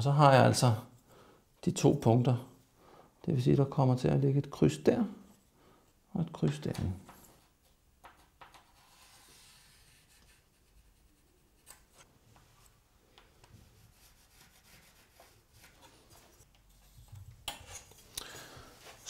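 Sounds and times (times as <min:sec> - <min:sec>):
pencil scratching along ruler: 0:08.5 - 0:12.1, 0:13.7 - 0:16.0.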